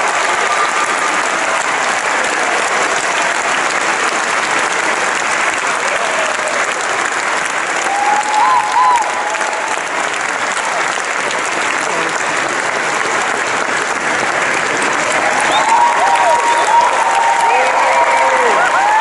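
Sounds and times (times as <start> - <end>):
audience applauding: 0.0 - 19.0
crowd cheering: 0.0 - 19.0.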